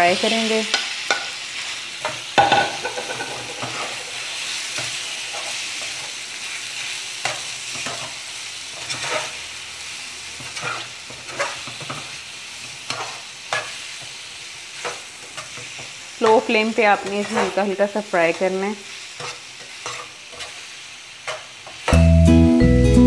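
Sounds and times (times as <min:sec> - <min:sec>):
chicken sizzling in hot oil: 0:00.0 - 0:22.5
metal spatula scraping wok: 0:00.7 - 0:06.2, 0:07.2 - 0:09.6, 0:10.2 - 0:14.0, 0:14.8 - 0:21.8.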